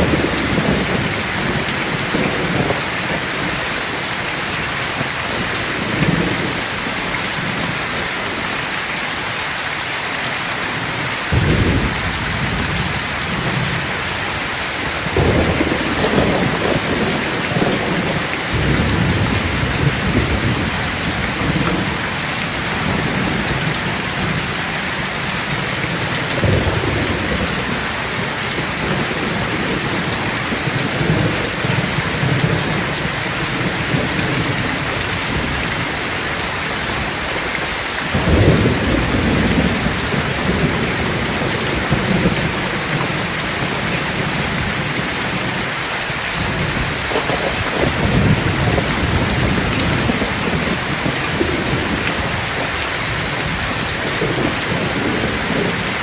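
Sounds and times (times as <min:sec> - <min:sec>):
heavy rain on roof and foliage: 0:00.0 - 0:56.0
thunder rolling: 0:11.3 - 0:14.2, 0:14.9 - 0:24.6, 0:38.1 - 0:45.7, 0:46.4 - 0:55.8.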